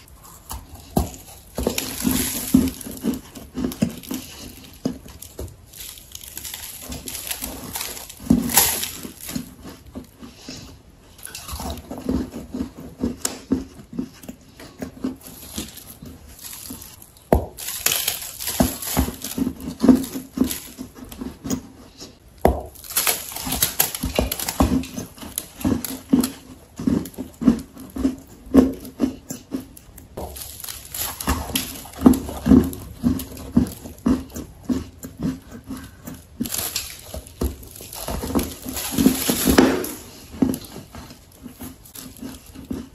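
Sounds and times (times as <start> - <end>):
person chewing crunchy food: 0.0 - 42.9.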